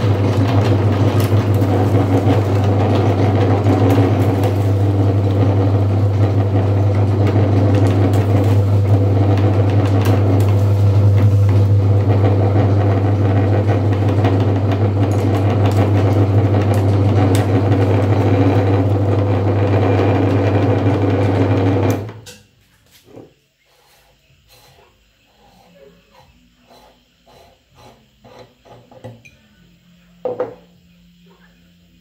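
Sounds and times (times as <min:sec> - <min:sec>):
candy crushing clicks: 0:00.0 - 0:19.0
meat grinder humming: 0:00.0 - 0:22.2.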